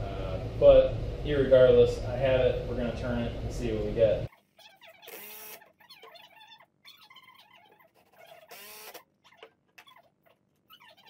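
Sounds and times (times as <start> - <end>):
faint squeaks: 4.3 - 11.0
cordless driver motor whine: 5.1 - 5.6, 8.5 - 9.0.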